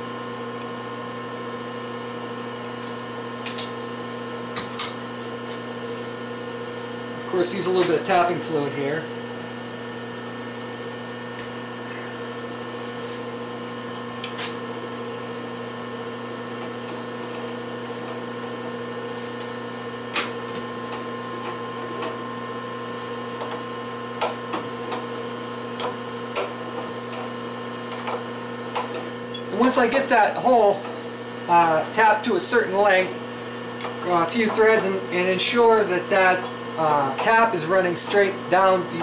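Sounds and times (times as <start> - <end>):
electric hum of machinery: 0.0 - 39.0.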